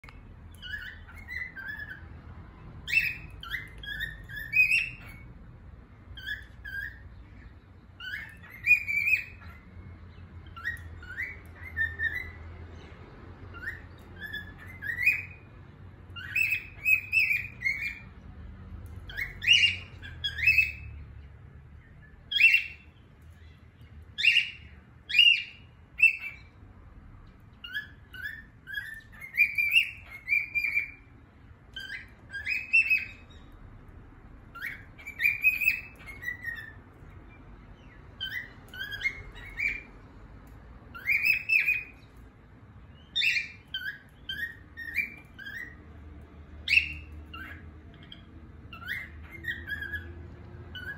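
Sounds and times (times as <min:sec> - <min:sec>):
cockatiel whistling: 0:00.0 - 0:02.1, 0:02.8 - 0:05.3, 0:06.2 - 0:07.1, 0:08.0 - 0:09.7, 0:10.4 - 0:12.4, 0:13.5 - 0:15.5, 0:16.1 - 0:18.1, 0:19.0 - 0:21.0, 0:22.2 - 0:23.6, 0:24.2 - 0:26.6, 0:27.6 - 0:31.1, 0:31.7 - 0:33.5, 0:34.5 - 0:39.9, 0:40.9 - 0:42.1, 0:42.9 - 0:45.8, 0:46.6 - 0:50.9.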